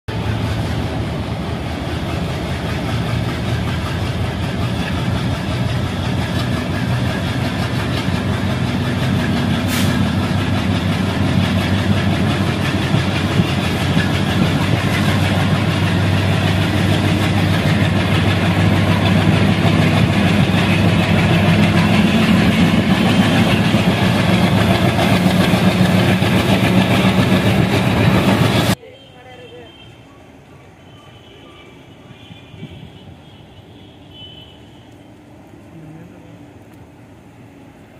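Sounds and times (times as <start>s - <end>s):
diesel locomotive engine running: 0.1s - 28.8s.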